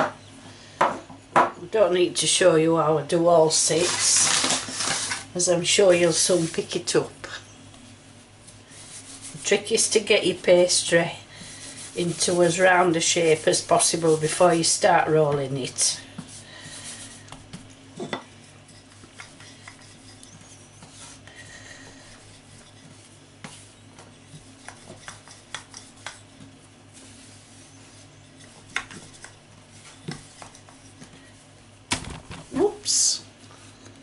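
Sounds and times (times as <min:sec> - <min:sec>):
low steady hum: 0:00.0 - 0:34.0
rolling pin rolling pastry: 0:08.4 - 0:31.4.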